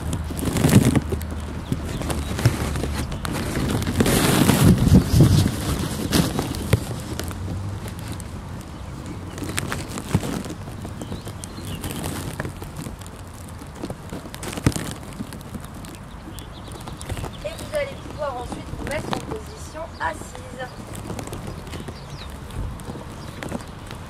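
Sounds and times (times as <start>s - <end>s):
rumbling noise: 0.0s - 24.0s.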